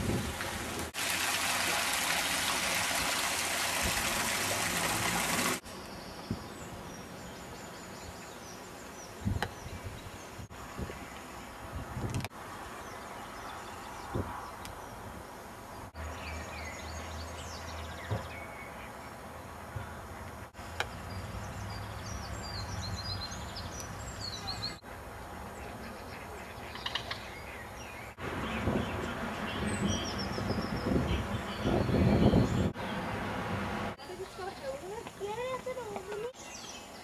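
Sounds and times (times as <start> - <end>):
outdoor background noise: 0.0 - 37.0
small birds chirping: 12.7 - 24.8, 25.5 - 33.1, 34.0 - 37.0.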